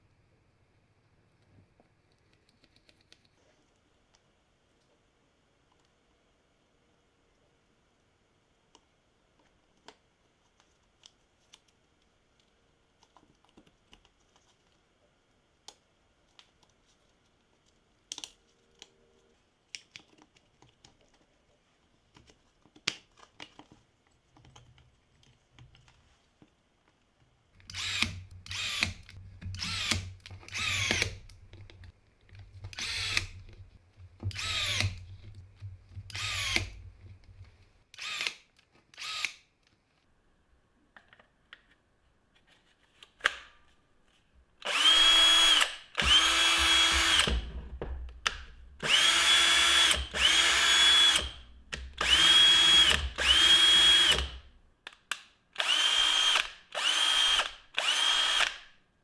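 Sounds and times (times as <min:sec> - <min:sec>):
cordless drill driving screws: 0:27.7 - 0:31.2, 0:32.8 - 0:33.4, 0:34.3 - 0:35.0, 0:36.1 - 0:36.8, 0:38.0 - 0:38.3, 0:39.0 - 0:39.4, 0:44.6 - 0:47.4, 0:48.8 - 0:51.4, 0:52.0 - 0:54.4, 0:55.6 - 0:58.6.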